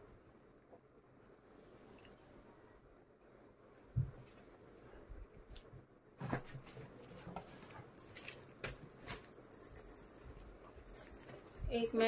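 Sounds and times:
floor mat rustling: 0:03.7 - 0:12.0.

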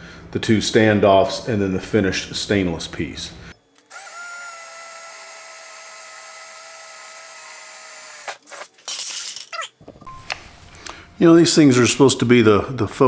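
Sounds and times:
cordless drill motor whining: 0:03.9 - 0:08.4.

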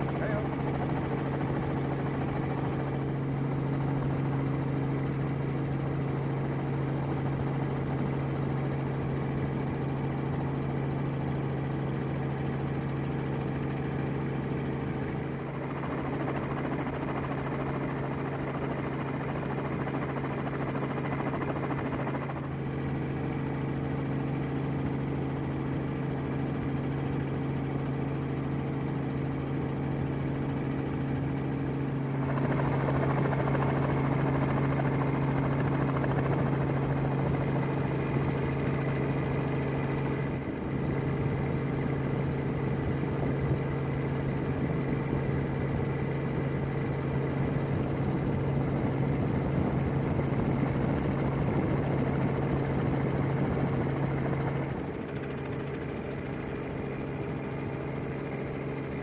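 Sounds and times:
helicopter engine and rotors: 0:00.0 - 0:59.0.

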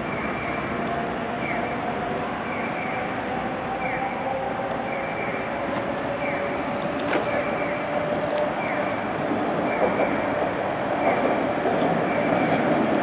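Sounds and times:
street traffic noise: 0:00.0 - 0:13.0
tram approaching: 0:00.0 - 0:13.0.

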